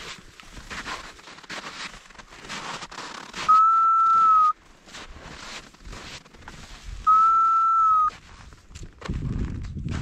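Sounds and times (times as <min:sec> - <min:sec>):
footsteps on snow and rock: 0:00.0 - 0:07.2, 0:07.8 - 0:10.0
whistle blast: 0:03.5 - 0:04.6, 0:07.1 - 0:08.1.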